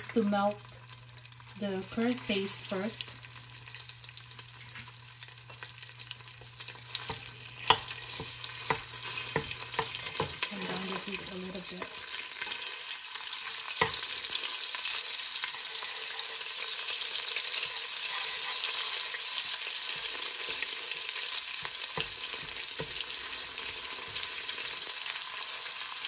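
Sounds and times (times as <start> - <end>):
curry paste sizzling in oil: 0.0 - 26.0
metal spoon stirring in pot: 3.6 - 11.2, 17.6 - 19.2
spoon clinking against pot: 7.0 - 10.4.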